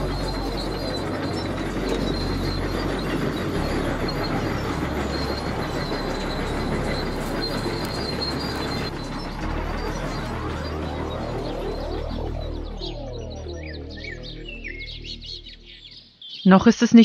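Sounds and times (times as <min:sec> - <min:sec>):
metal squealing and clanking: 0:00.0 - 0:13.2.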